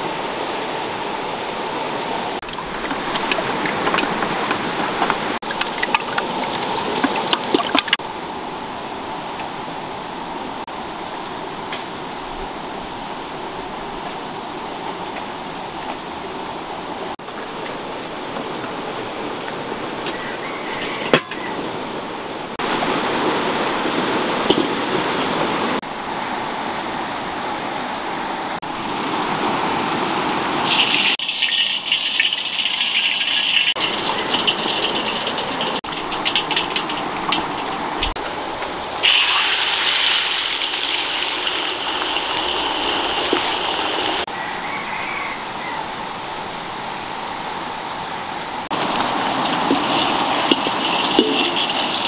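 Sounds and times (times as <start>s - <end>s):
river flowing over stones: 0.0s - 9.8s, 21.8s - 44.3s, 46.1s - 52.0s.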